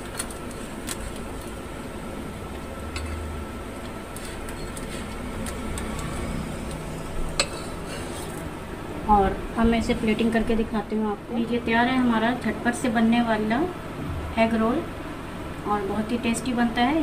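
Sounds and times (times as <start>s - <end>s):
spatula scraping a pan: 7.4s - 8.4s.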